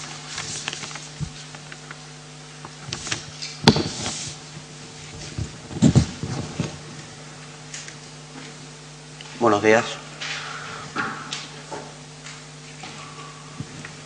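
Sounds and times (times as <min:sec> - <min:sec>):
steady low hum: 0:00.0 - 0:14.0
microphone handling knocks and rubbing: 0:02.8 - 0:07.1.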